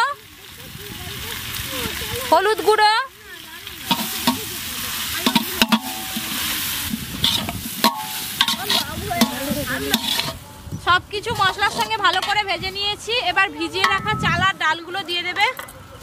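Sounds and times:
vegetables sizzling in oil: 0.0 - 15.3
metal spatula scraping a pot: 5.2 - 10.4, 11.4 - 12.5.

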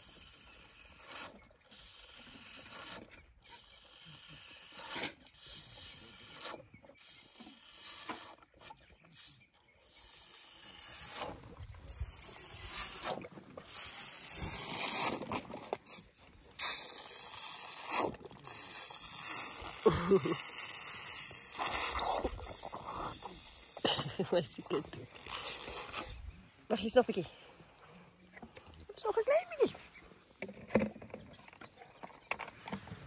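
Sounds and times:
elephant sucking from bottle: 0.0 - 26.4.

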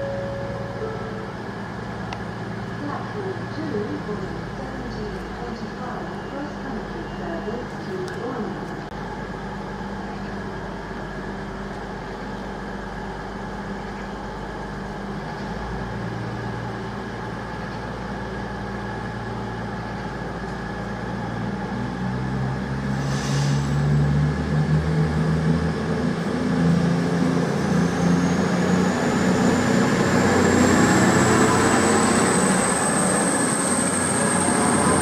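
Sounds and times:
train diesel engines idling: 0.0 - 35.0
brief hiss: 23.0 - 23.7.

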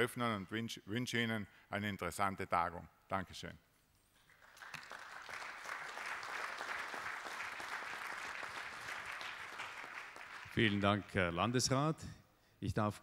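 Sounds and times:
audience applauding: 4.3 - 10.8.

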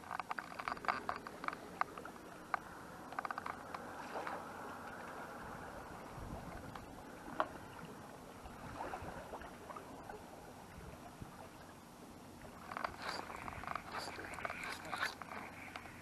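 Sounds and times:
sea water lapping on concrete: 0.0 - 11.6, 12.4 - 16.0
wind on microphone: 5.5 - 6.8.

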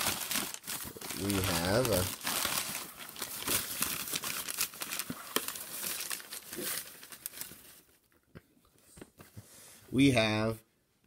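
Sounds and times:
sharp paper crackle: 0.0 - 7.9
packing paper crinkling: 0.0 - 8.0.

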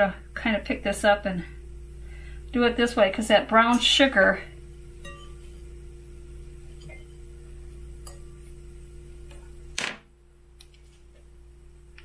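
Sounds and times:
steady low hum: 0.0 - 12.0
fork clinking against glass bowl: 5.0 - 5.4, 8.0 - 8.4.

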